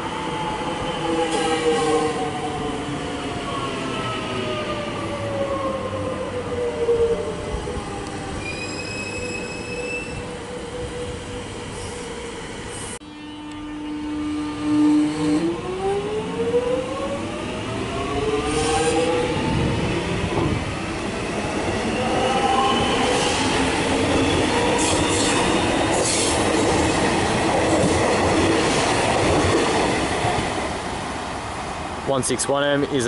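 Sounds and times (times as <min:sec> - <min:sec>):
wheels rumbling on rail: 0:14.6 - 0:32.1.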